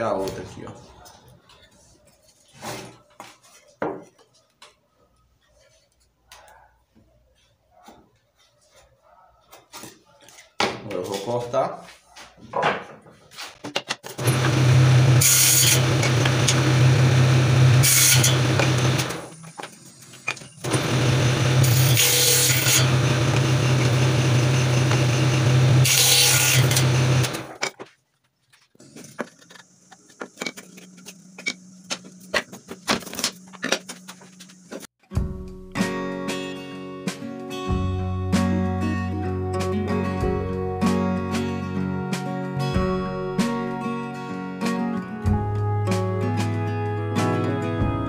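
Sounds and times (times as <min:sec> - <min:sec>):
saw blade cutting wood: 0:14.2 - 0:19.3, 0:20.6 - 0:27.6
table saw running: 0:14.2 - 0:19.4, 0:20.6 - 0:27.6.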